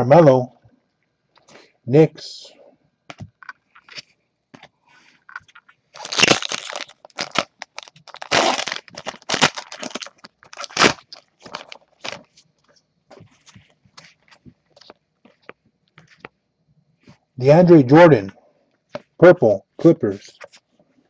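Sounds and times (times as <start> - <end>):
foil wrapper crinkling: 5.0 - 15.0.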